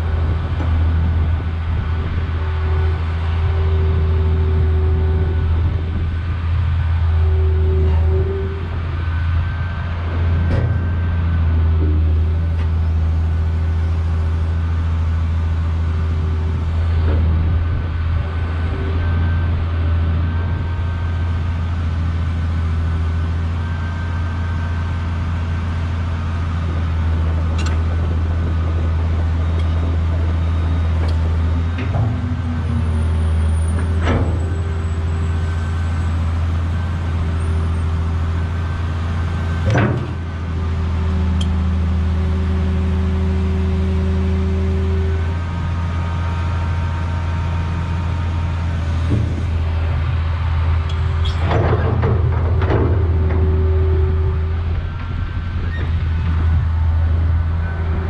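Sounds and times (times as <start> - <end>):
excavator diesel engine running: 0.0 - 58.0
hydraulic whine: 0.0 - 58.0
machine clunks: 33.7 - 34.8, 39.6 - 40.3, 50.9 - 56.6.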